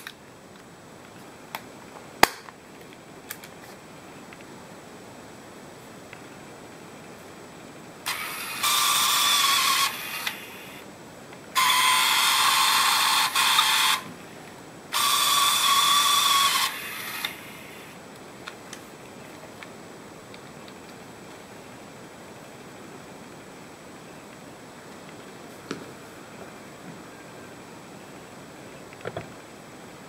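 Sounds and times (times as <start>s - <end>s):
movie camera motor whirring: 8.0s - 10.8s, 11.6s - 14.1s, 14.9s - 17.9s.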